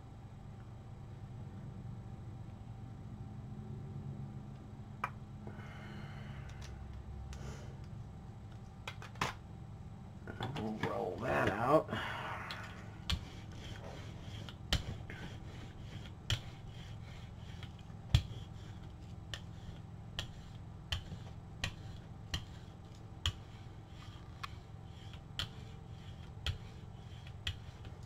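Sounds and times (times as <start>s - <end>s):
brayer rubbing on plate: 12.8s - 28.0s.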